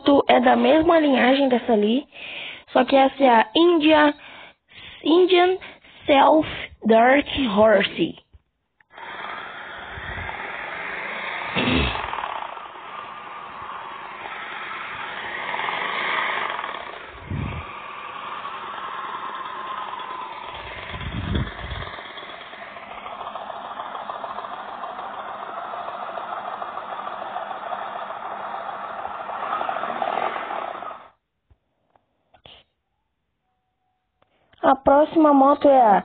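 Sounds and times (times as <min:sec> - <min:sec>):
motorcycle engine revving: 0:08.9 - 0:31.2.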